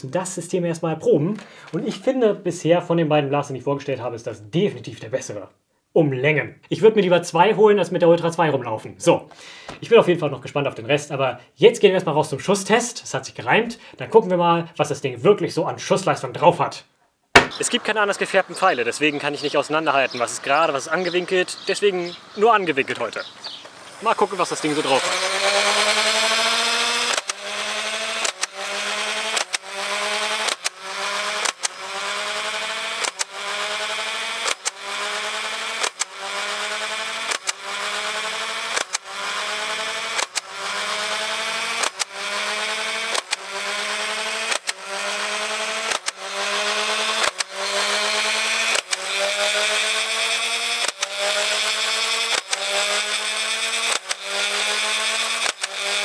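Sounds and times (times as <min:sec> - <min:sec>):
dart firing click: 0:17.4 - 0:17.6
toy blaster flywheels whirring: 0:17.4 - 0:56.0.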